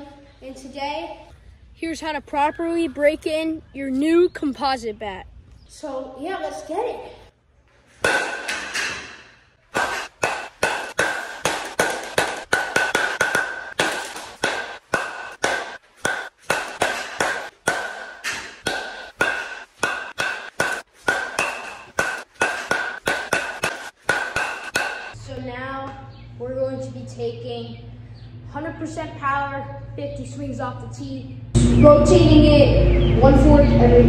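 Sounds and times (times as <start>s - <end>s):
bat hitting baseball with ping: 8.0s - 25.2s.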